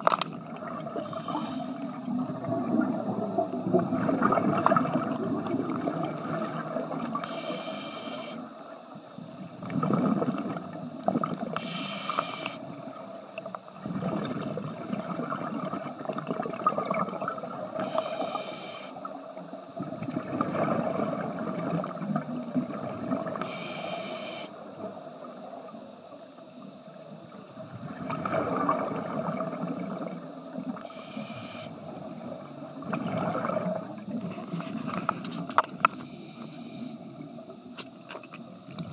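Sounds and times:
exhaled bubbles gurgling: 0.0s - 18.4s, 19.0s - 23.8s, 24.6s - 35.9s
diver inhaling through regulator: 1.0s - 2.1s, 7.2s - 8.5s, 11.6s - 12.7s, 17.7s - 19.1s, 23.4s - 24.6s, 30.8s - 31.8s, 35.9s - 37.0s.

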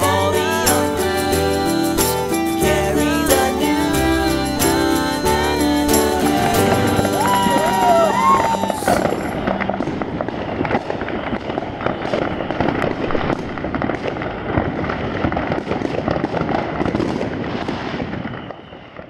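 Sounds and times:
fireworks cracking and popping: 0.0s - 19.0s.

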